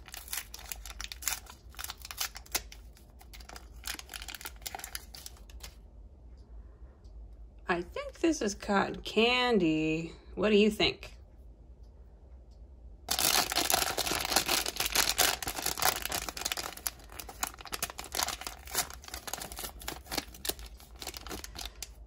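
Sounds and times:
wrapping being torn and crinkled: 0.0 - 5.8, 13.1 - 22.0.

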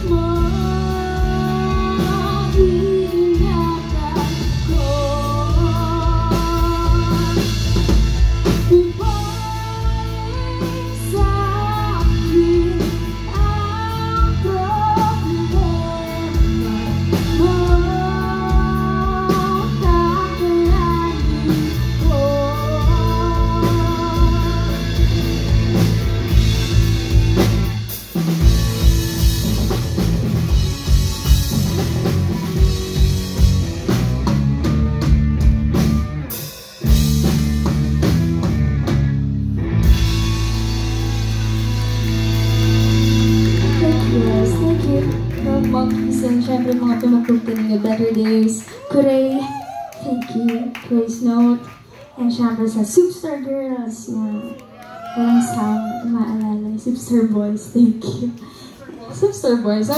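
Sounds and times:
person singing: 0.0 - 7.6, 8.6 - 25.3
live rock band playing: 0.0 - 59.9.

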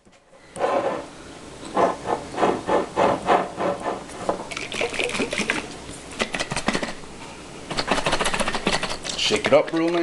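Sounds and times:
liquid sloshing in shaken jar: 4.5 - 7.0.

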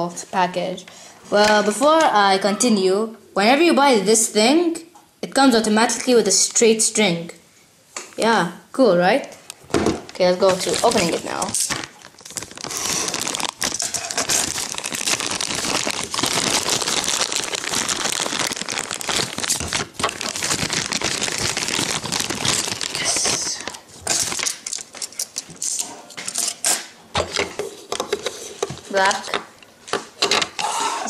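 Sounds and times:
plastic packaging crinkling: 9.6 - 26.7.

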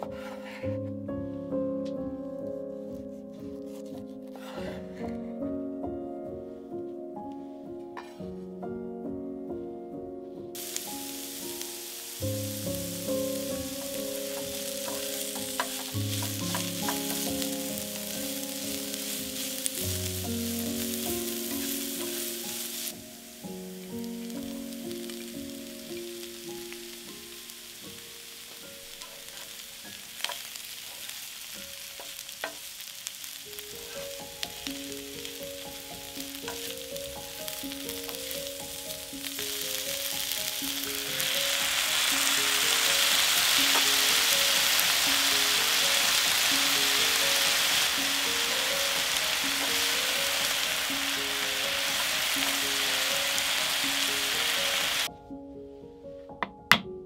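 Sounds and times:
food sizzling in frying pan: 0.0 - 0.7, 10.6 - 55.1.

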